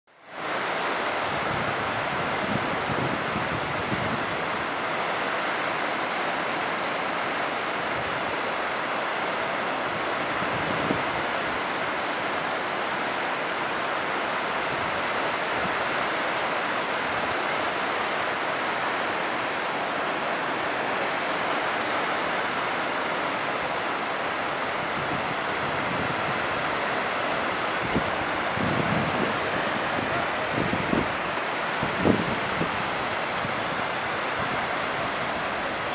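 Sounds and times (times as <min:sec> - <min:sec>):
waterfall rushing: 0:00.2 - 0:35.9
wind gusts buffeting the microphone: 0:00.4 - 0:35.9.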